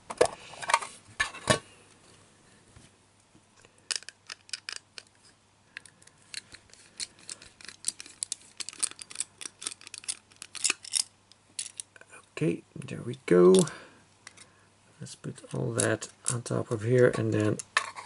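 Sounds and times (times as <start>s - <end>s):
screwdriver clicks and scratches: 6.3s - 11.9s.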